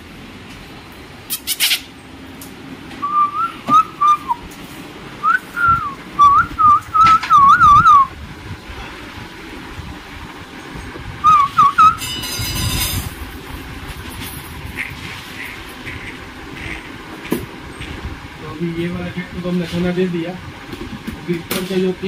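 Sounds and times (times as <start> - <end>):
person whistling a tune: 3.0 - 4.4, 5.2 - 8.1, 11.2 - 12.0.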